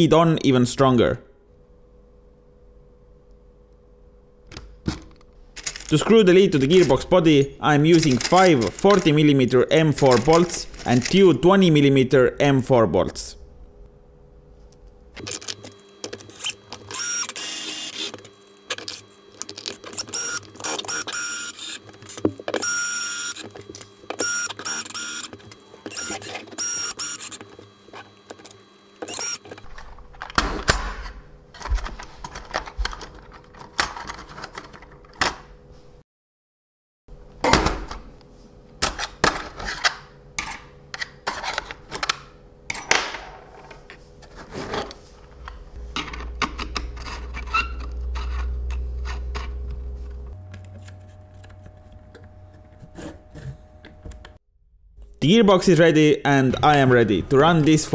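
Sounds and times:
plastic parts clicking and knocking: 4.5 - 7.0, 7.9 - 9.2
electric screwdriver motor whining: 15.4 - 28.4, 29.0 - 29.6
low hum: 43.4 - 55.5.

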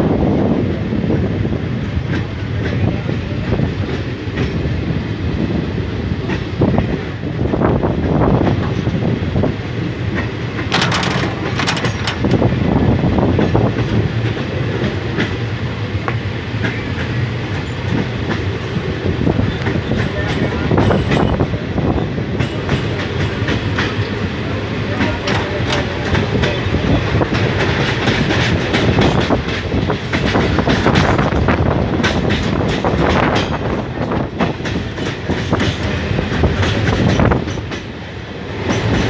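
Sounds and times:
train wheels rumbling: 0.0 - 39.0
track clicks: 10.2 - 12.6.

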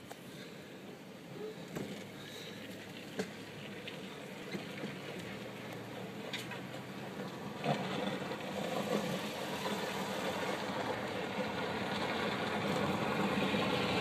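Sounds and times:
tyres on road: 0.0 - 14.0.

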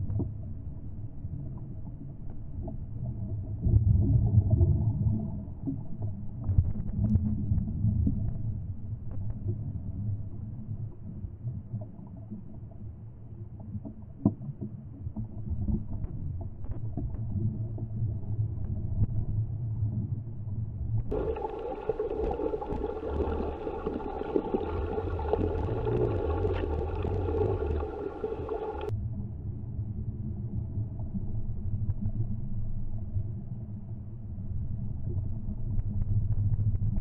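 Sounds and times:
muffled underwater rumble: 0.0 - 37.0
steady whine: 21.1 - 28.9.

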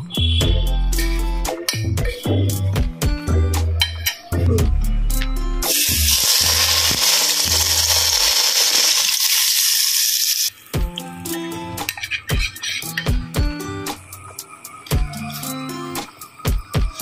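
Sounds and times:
background music: 0.0 - 9.0, 10.6 - 17.0
hot oil sizzling: 5.6 - 10.7.

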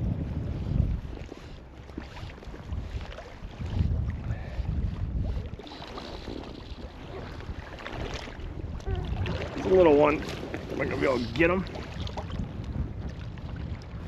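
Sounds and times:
wind gusting over microphone: 0.0 - 14.0
water slapping against float tube: 5.5 - 14.0.

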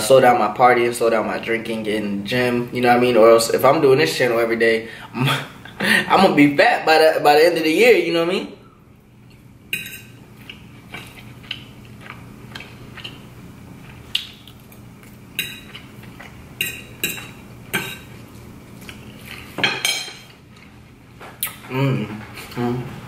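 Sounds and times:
fork clinking on ceramic plate: 9.7 - 10.1.

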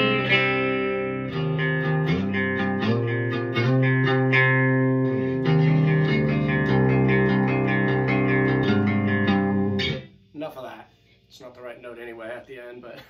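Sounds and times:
clean electric guitar arpeggios: 0.0 - 10.1.

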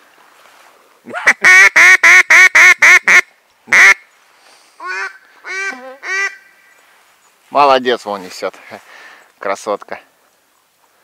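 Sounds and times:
duck quacking: 1.2 - 4.0, 4.8 - 6.5.

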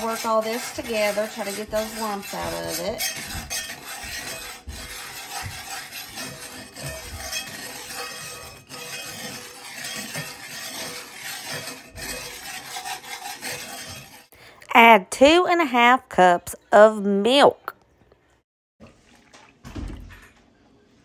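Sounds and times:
wire whisk scraping cast iron: 0.0 - 14.3.

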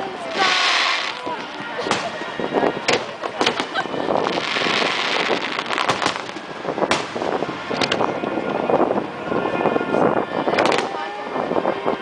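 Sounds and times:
crowd noise: 0.0 - 12.0
crackling hiss: 0.2 - 2.3, 2.9 - 8.0
fireworks bursting with bangs: 0.2 - 8.0, 10.6 - 11.0.

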